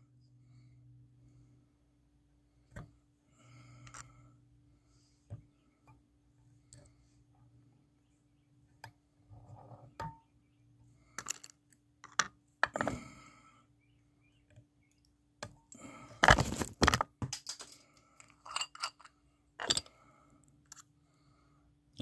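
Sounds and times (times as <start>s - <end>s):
faint steady hum: 0.0s - 22.0s
metal tools clicking and tapping: 17.2s - 19.9s.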